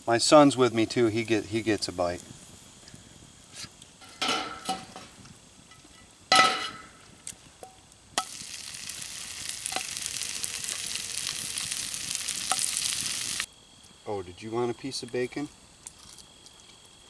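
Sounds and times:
bread sizzling in grease: 0:00.0 - 0:13.5
skillet clanking on grill grate: 0:04.0 - 0:05.2, 0:06.3 - 0:06.9.

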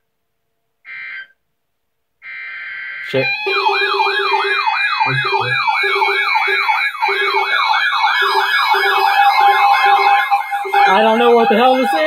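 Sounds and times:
yelping electronic siren: 0:02.2 - 0:12.0
high warbling tone: 0:03.2 - 0:12.0.

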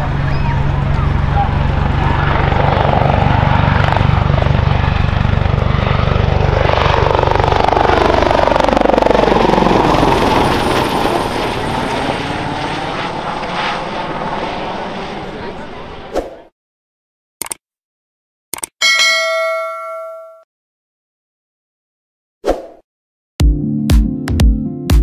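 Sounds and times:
helicopter flying overhead: 0:00.0 - 0:16.5.

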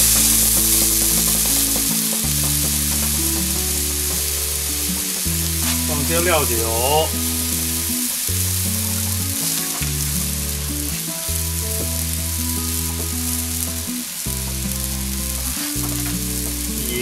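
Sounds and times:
stock bubbling and sizzling in a wok: 0:00.0 - 0:17.0.

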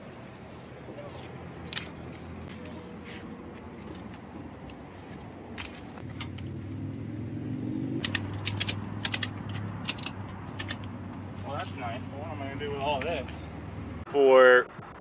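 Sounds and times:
vehicle engine humming: 0:00.0 - 0:14.1
ratchet strap clicking: 0:08.0 - 0:10.9.

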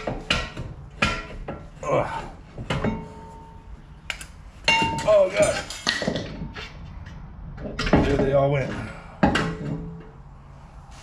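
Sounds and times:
metal knocks and clinks: 0:02.6 - 0:08.5.

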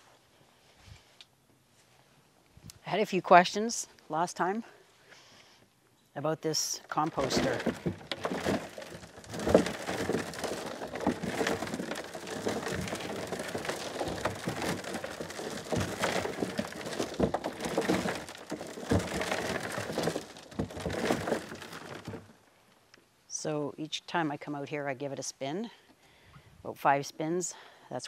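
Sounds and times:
compost tumbling in a drum: 0:06.5 - 0:22.5.

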